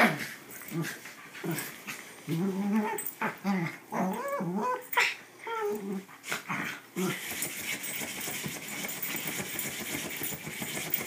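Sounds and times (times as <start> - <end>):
dogs growling: 0.0 - 7.3.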